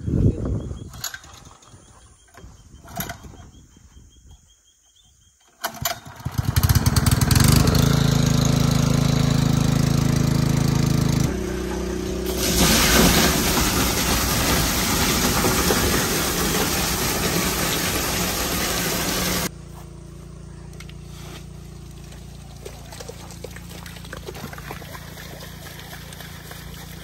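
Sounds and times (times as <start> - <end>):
engine hum: 5.6 - 27.0
loud rushing water: 12.1 - 19.5.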